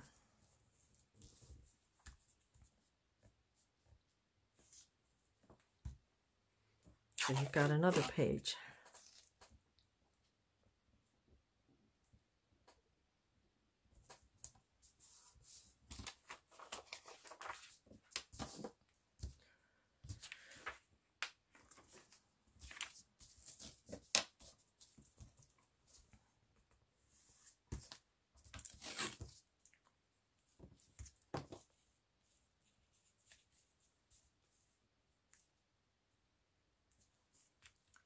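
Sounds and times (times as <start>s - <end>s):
paper pages rustling: 15.0s - 19.4s.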